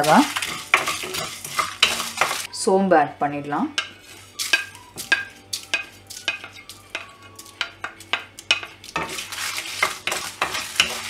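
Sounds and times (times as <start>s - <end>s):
spatula tapping a pan: 0.0s - 2.5s, 3.8s - 11.0s
spices scraping in a pan: 0.0s - 2.5s, 3.8s - 11.0s.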